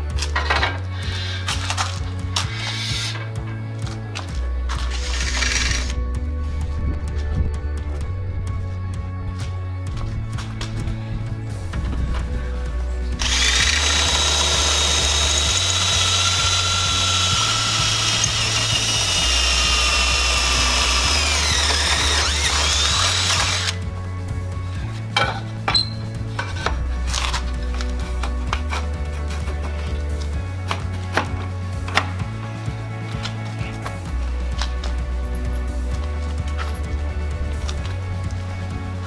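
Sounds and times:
cordless drill into metal: 2.5s - 3.2s, 13.2s - 23.8s.

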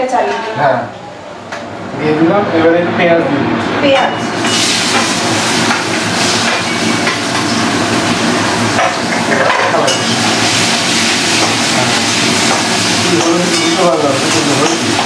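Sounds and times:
onions sizzling in hot oil: 4.2s - 15.0s.

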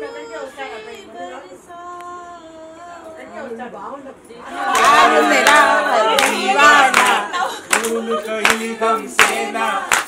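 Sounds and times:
people singing together: 4.4s - 10.0s
hand claps: 6.2s - 10.0s.

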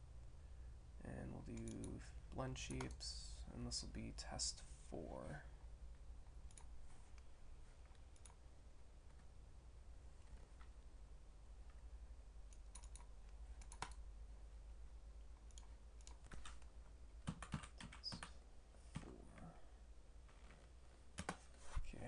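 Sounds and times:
computer mouse clicks: 1.5s - 2.0s, 2.7s - 3.0s, 6.5s - 8.4s, 12.5s - 14.0s, 15.3s - 16.7s, 21.2s - 21.4s
keyboard keystrokes: 15.5s - 18.3s.

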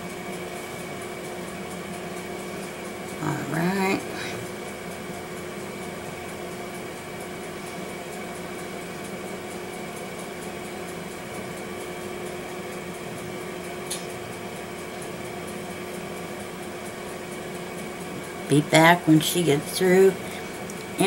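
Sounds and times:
appliance hum: 0.0s - 21.0s.

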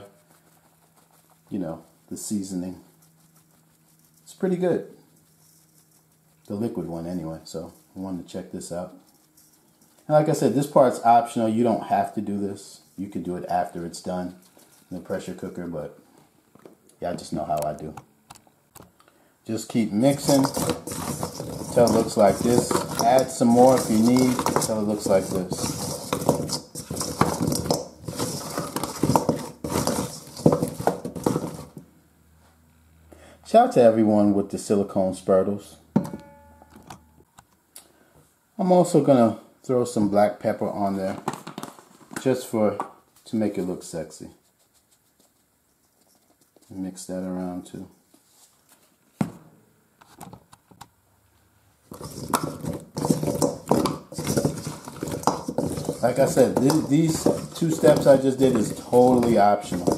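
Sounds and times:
wings scraping in metal bowl: 19.9s - 31.8s, 51.9s - 59.9s.

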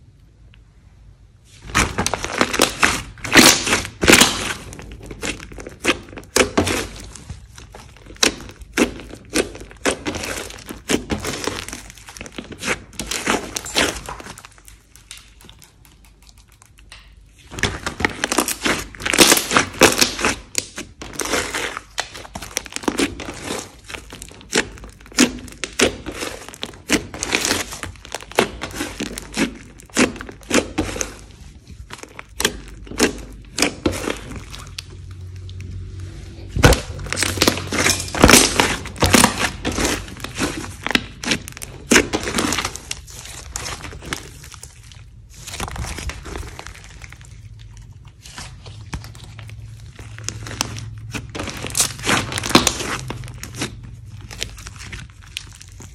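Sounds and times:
sticky slime clicks and crackles: 1.6s - 36.0s, 36.6s - 55.9s.

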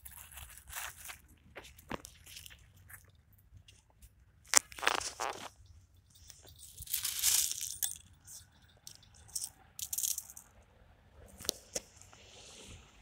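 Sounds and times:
footsteps crunching on gravel: 0.0s - 3.1s, 4.6s - 5.5s
stones knocking together: 4.5s - 5.5s.

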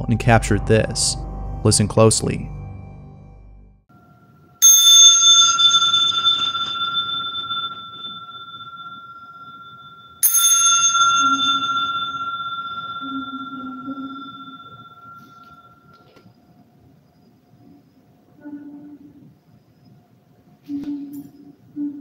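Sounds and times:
small metal bell ringing: 4.6s - 16.3s.

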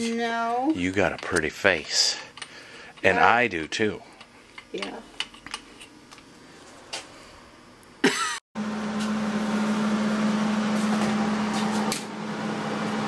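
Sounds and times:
air compressor running: 1.9s - 3.4s, 8.6s - 13.0s.

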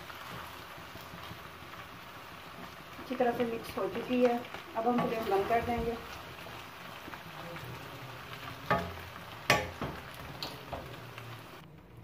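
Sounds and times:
spatula stirring in a wok: 0.0s - 11.6s
low sizzle: 0.0s - 12.0s
spatula knocking on pan: 8.7s - 11.0s.

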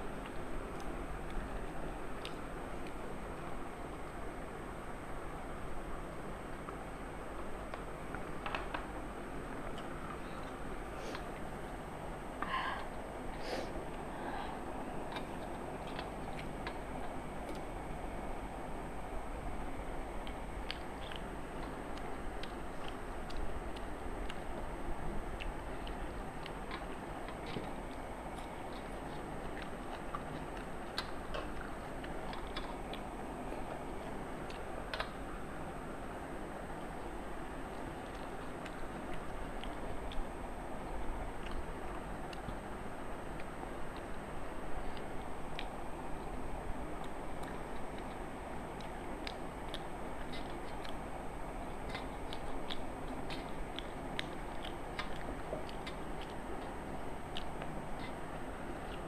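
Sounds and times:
steady background hiss: 0.0s - 59.0s
chewing smacks: 15.0s - 17.7s, 20.2s - 24.7s, 25.3s - 35.8s, 36.6s - 40.6s, 41.3s - 42.6s, 43.3s - 46.4s, 47.0s - 59.0s.

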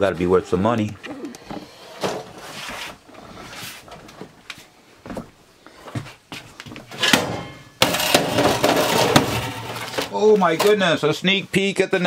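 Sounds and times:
rustling: 1.0s - 5.3s.

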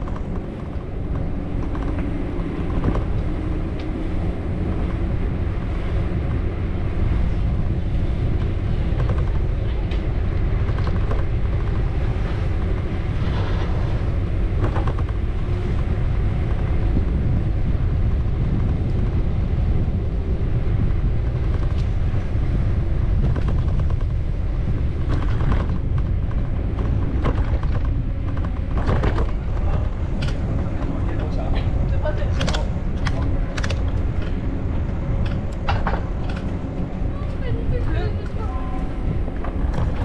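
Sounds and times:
road noise: 0.0s - 40.0s
wind buffeting microphone: 0.0s - 40.0s
faint street sounds: 24.0s - 40.0s.

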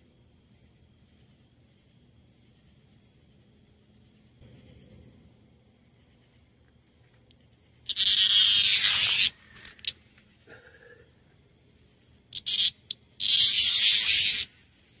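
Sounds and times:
cicada chirps: 0.0s - 15.0s
cicada buzzing: 7.8s - 10.1s, 12.3s - 15.0s.

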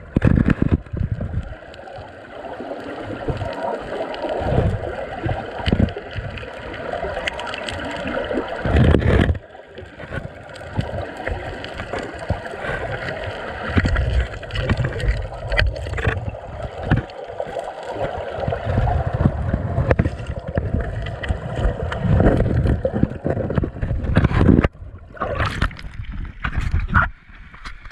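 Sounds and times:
underwater knocks: 0.0s - 1.5s, 18.4s - 27.8s
muffled underwater river churning: 0.0s - 27.9s.

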